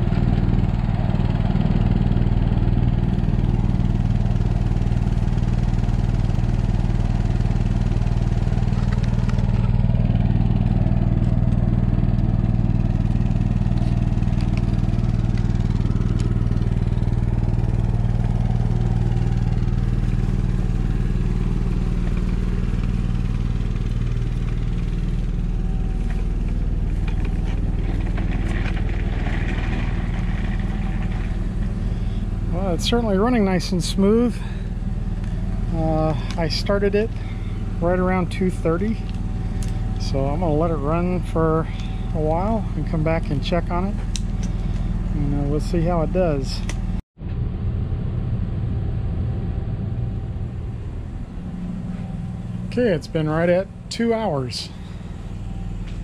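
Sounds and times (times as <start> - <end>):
generator engine droning: 0.0 - 56.0.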